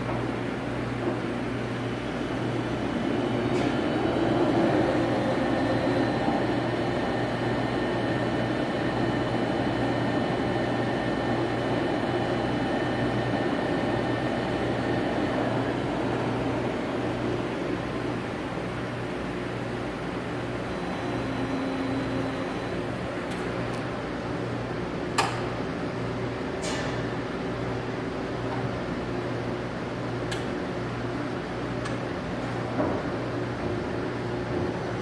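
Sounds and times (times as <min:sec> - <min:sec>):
boring mill humming: 0:00.0 - 0:26.5
faint high machine whine: 0:00.0 - 0:35.0.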